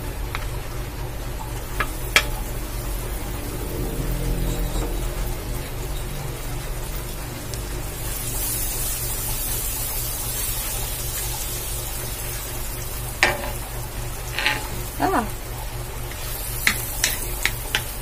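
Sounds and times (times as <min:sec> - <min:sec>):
low steady hum: 0:00.0 - 0:18.0
fat sizzling in a wok: 0:01.5 - 0:18.0.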